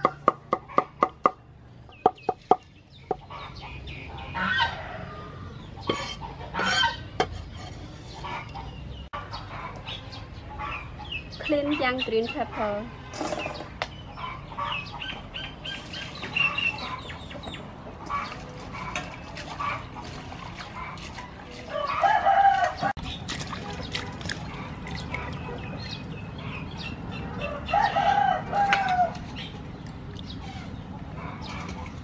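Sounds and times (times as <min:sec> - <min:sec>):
chickens clucking and peeping: 0:01.9 - 0:32.0
rooster crowing: 0:21.7 - 0:22.9, 0:27.4 - 0:29.2.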